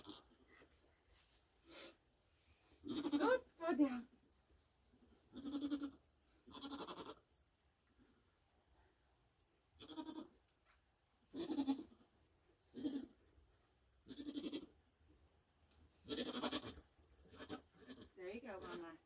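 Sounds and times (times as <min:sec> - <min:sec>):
goat bleating: 0:00.0 - 0:00.4, 0:02.8 - 0:03.5, 0:05.3 - 0:07.2, 0:09.8 - 0:10.4, 0:11.3 - 0:12.0, 0:12.7 - 0:13.2, 0:14.0 - 0:14.8, 0:16.0 - 0:19.0.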